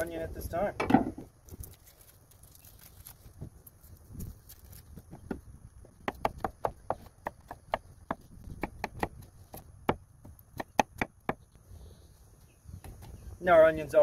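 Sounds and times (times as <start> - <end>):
knife chopping on wooden board: 6.0 - 10.0, 10.6 - 11.4.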